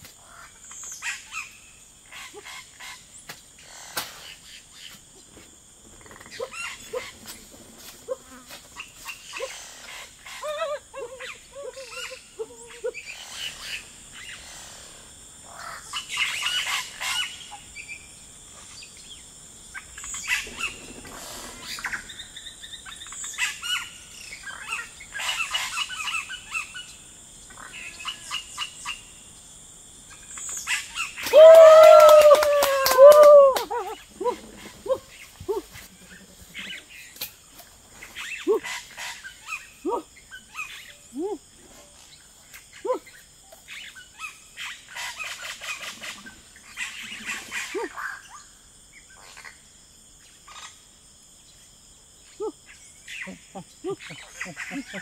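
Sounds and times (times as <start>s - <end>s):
jungle insects droning: 0.0s - 55.0s
leaves and bamboo rustling: 4.2s - 9.5s
wavering vocal call: 31.2s - 35.7s.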